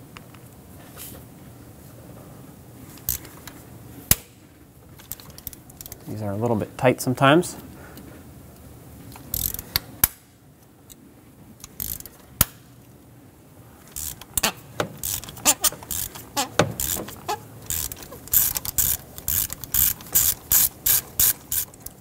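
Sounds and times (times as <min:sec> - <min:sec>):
ratchet clicking: 0:09.3 - 0:09.8, 0:11.6 - 0:12.2, 0:13.9 - 0:22.0.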